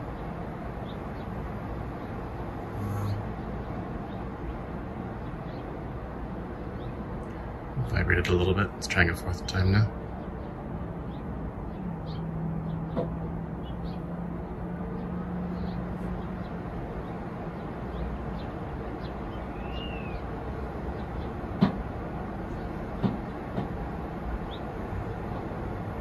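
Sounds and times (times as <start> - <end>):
compressor humming: 2.6 - 3.6
knock on a window: 21.6 - 21.8, 23.0 - 23.7.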